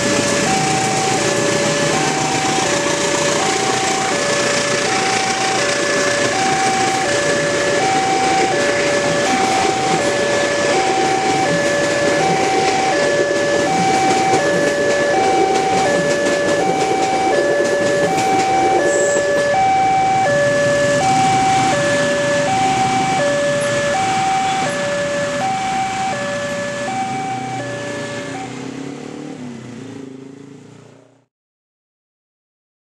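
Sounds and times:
two-tone crossing alarm chime: 0:00.0 - 0:28.8
passing train rumble: 0:00.0 - 0:31.2.

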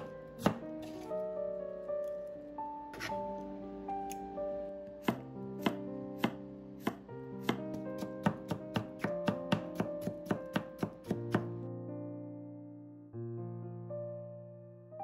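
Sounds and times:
knife chopping on wooden board: 0:00.0 - 0:01.1, 0:05.0 - 0:11.5
soft background music: 0:00.0 - 0:15.0.

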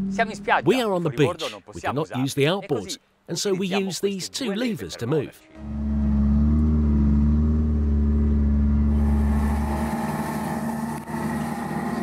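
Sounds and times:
boat engine running: 0:05.6 - 0:12.0.

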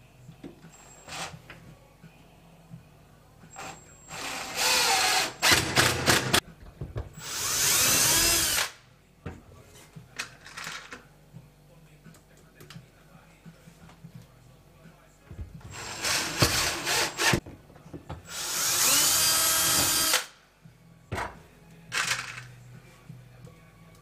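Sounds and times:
cordless drill running: 0:04.1 - 0:05.6, 0:07.2 - 0:08.7, 0:18.3 - 0:20.3.

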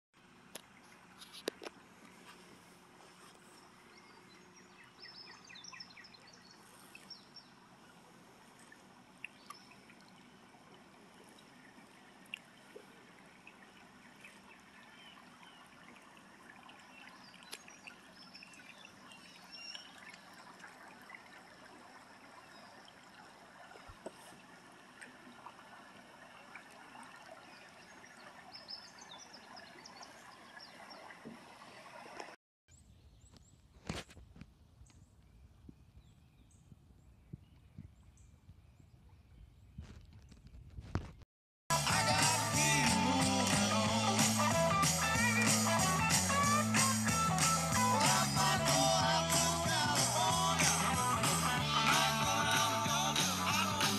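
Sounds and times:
river water trickling and lapping: 0:00.2 - 0:32.4.

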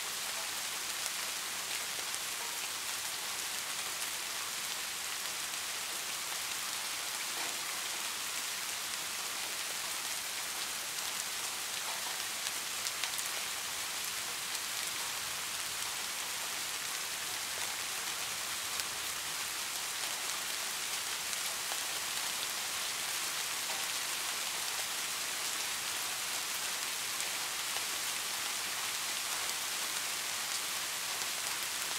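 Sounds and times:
heavy rain falling: 0:00.0 - 0:31.9.

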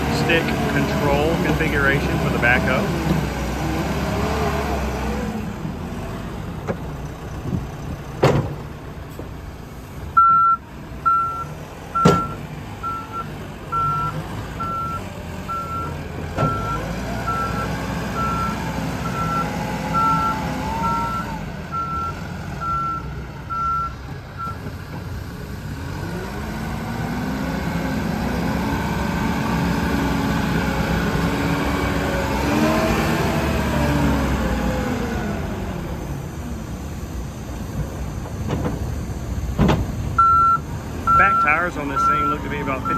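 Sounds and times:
diesel engine running: 0:00.0 - 0:42.9
backup alarm beeping: 0:10.2 - 0:15.9, 0:16.5 - 0:24.6, 0:40.2 - 0:42.9.

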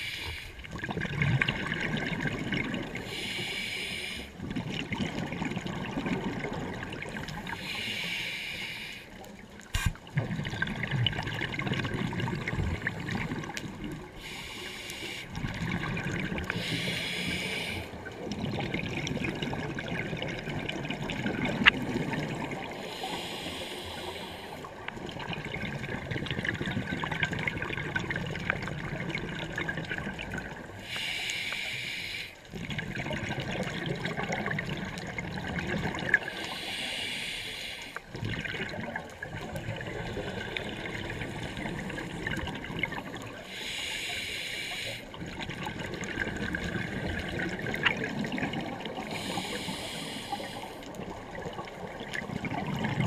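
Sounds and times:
hissing regulator inhale: 0:00.0 - 0:00.6, 0:03.0 - 0:04.4, 0:07.5 - 0:09.2, 0:14.2 - 0:15.4, 0:16.4 - 0:18.0, 0:22.8 - 0:24.7, 0:30.8 - 0:32.5, 0:36.2 - 0:38.1, 0:43.4 - 0:45.2, 0:49.0 - 0:51.0
exhaled air bubbling underwater: 0:00.0 - 0:53.0.

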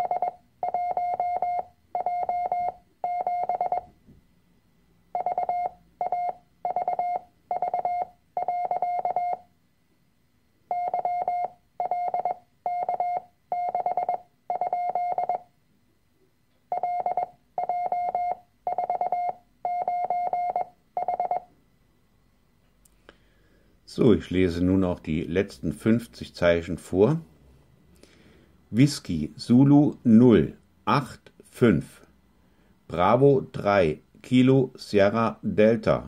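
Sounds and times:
morse code tones: 0:00.0 - 0:03.9, 0:05.1 - 0:09.5, 0:10.7 - 0:15.5, 0:16.7 - 0:21.5.

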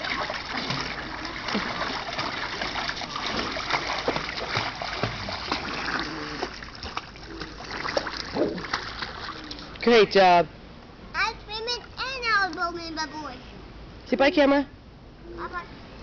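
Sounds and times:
child swimming with small splashes: 0:00.0 - 0:09.8.

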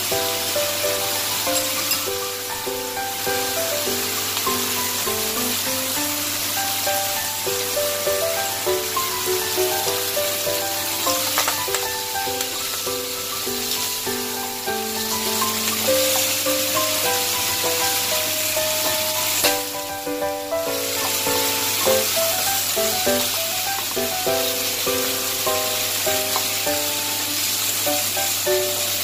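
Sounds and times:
simple background music melody: 0:00.0 - 0:29.0
vegetables sizzling in a pan: 0:00.0 - 0:29.0
spatula tossing food in pan: 0:20.7 - 0:26.9.

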